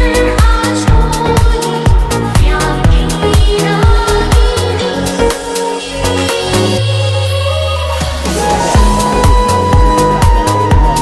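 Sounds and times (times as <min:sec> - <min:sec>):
deep bass notes: 0:00.0 - 0:11.0
electronic music: 0:00.0 - 0:11.0
drum hits: 0:08.2 - 0:11.0.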